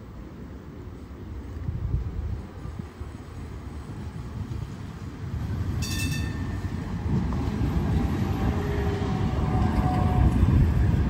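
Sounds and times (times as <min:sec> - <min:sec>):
tram wheels rumbling on rails: 0:00.0 - 0:11.0
short high ring: 0:05.8 - 0:06.6.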